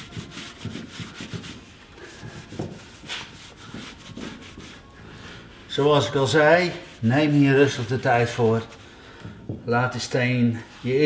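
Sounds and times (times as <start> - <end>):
sponge scrubbing stone: 0.0 - 4.9.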